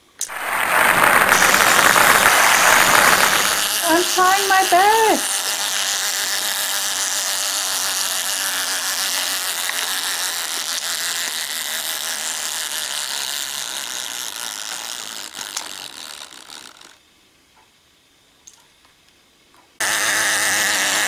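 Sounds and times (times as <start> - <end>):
clockwork toy gears whirring: 0.2 - 17.0, 19.8 - 21.0.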